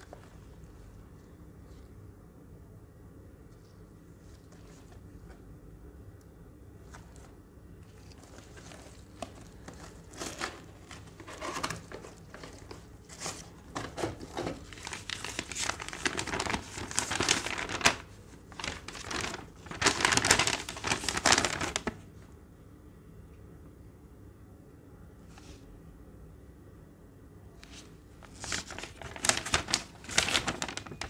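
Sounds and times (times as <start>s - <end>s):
paper packaging rustling: 4.2s - 5.4s, 6.8s - 22.1s, 27.6s - 31.0s
paper sheet unfolding: 6.9s - 22.0s, 27.6s - 31.0s.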